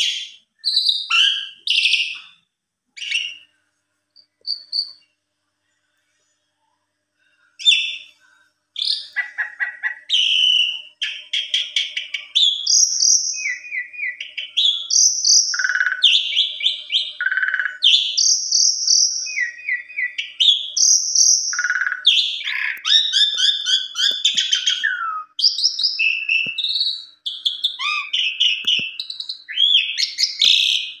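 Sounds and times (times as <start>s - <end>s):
starling singing: 0.0s - 2.4s, 8.8s - 31.0s.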